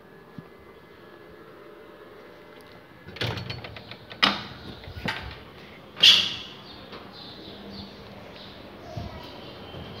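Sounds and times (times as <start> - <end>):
door handle and latch rattling: 3.1 - 5.4.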